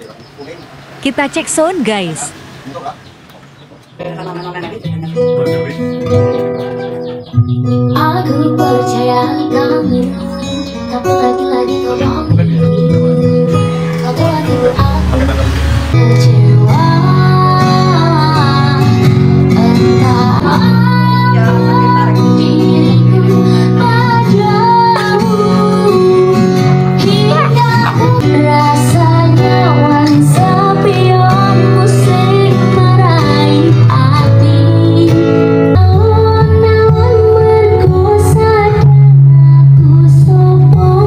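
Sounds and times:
bass accompaniment: 0:00.0 - 0:41.0
guitar: 0:00.0 - 0:41.0
woman singing: 0:07.8 - 0:15.2, 0:16.0 - 0:41.0.

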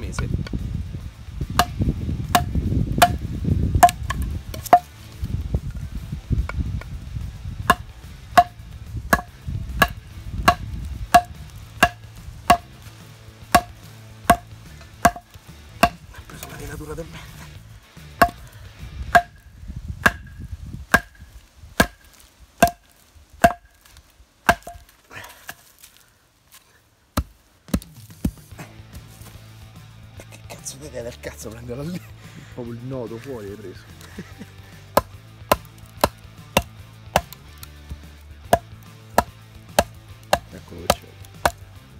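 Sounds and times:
wooden baton striking knife spine: 0:01.6 - 0:03.2, 0:03.8 - 0:04.9, 0:07.6 - 0:12.8, 0:13.5 - 0:16.6, 0:19.1 - 0:21.2, 0:35.0 - 0:37.7.

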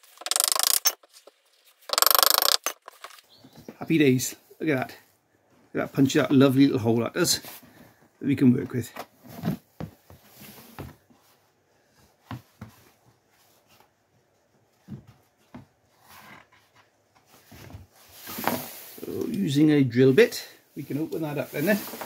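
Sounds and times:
card rustling: 0:00.0 - 0:03.3.

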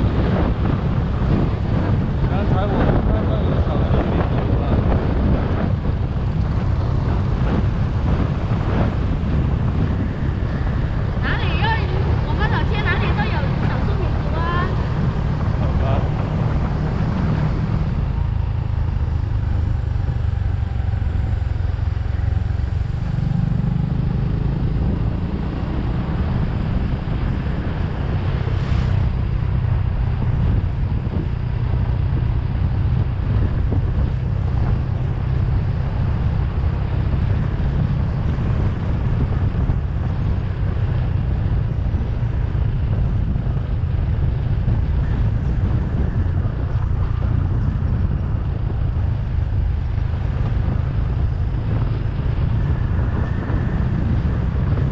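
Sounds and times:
motorcycle engine running: 0:00.0 - 0:54.9.

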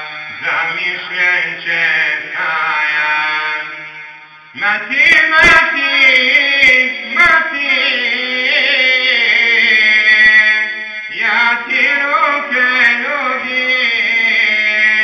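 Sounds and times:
man singing devotional song: 0:00.0 - 0:15.0.

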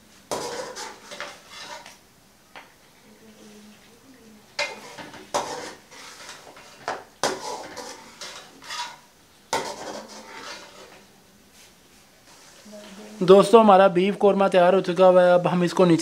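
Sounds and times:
metal spoon scraping a pot: 0:00.3 - 0:02.0, 0:04.6 - 0:11.1.

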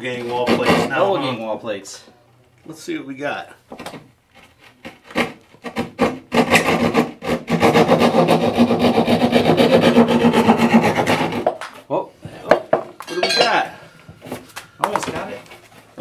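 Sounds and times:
hand saw cutting drywall: 0:00.1 - 0:01.2, 0:04.4 - 0:11.6.

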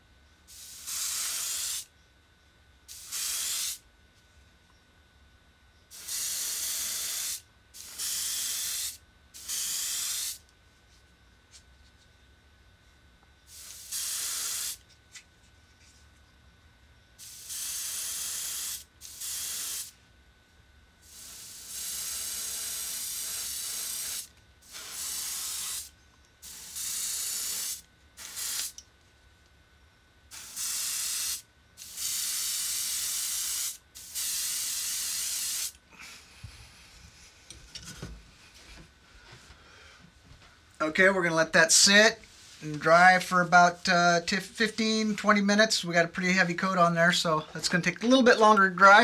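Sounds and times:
airbrush spraying hiss: 0:00.5 - 0:01.9, 0:02.9 - 0:03.8, 0:05.9 - 0:10.4, 0:13.5 - 0:14.8, 0:17.2 - 0:20.0, 0:21.0 - 0:28.8, 0:30.3 - 0:35.8.

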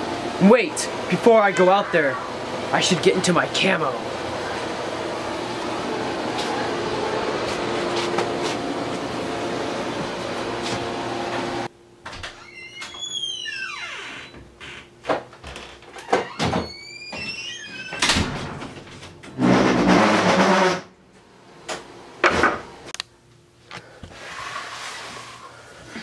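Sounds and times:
door squeaking: 0:12.1 - 0:20.9
loud rough noise: 0:19.4 - 0:20.9.

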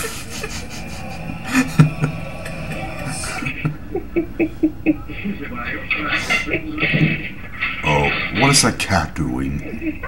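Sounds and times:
man laughing: 0:00.0 - 0:05.6.

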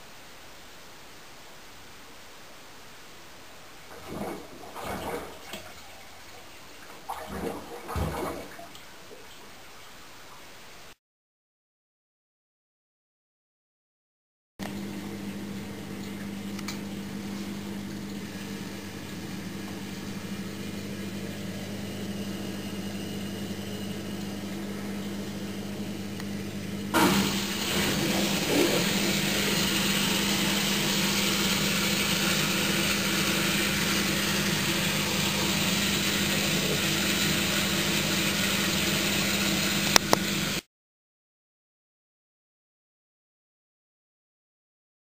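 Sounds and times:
water rushing: 0:03.6 - 0:10.9, 0:26.9 - 0:40.6
drain pump humming: 0:03.8 - 0:09.8, 0:14.6 - 0:40.6
washing machine clunk: 0:27.0 - 0:32.4.

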